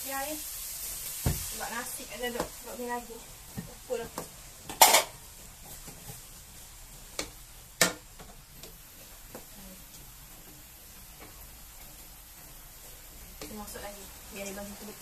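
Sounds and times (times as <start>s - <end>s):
cookware clattering: 4.7s - 5.2s.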